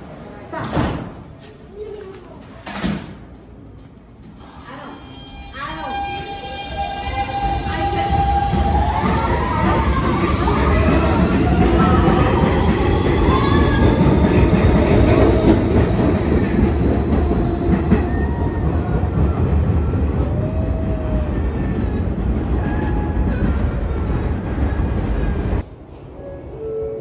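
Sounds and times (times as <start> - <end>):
train wheels rumbling on rail: 6.6 - 26.0.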